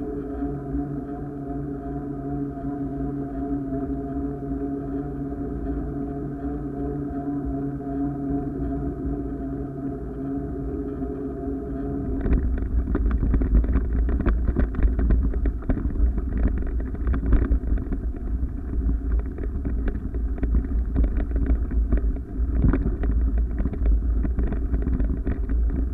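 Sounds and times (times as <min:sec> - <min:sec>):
wind buffeting microphone: 0:11.6 - 0:25.9.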